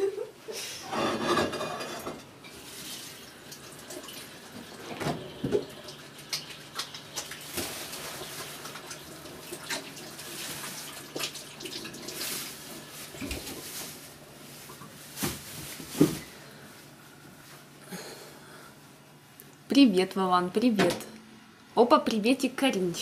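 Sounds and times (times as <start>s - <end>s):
kitchenware clattering: 0.8s - 2.6s.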